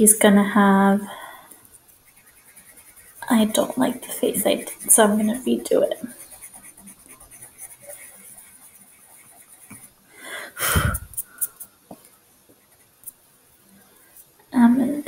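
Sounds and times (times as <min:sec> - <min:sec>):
pencil scratching on paper: 0:01.7 - 0:10.0, 0:12.5 - 0:13.2
breathy puff of air: 0:10.1 - 0:11.6.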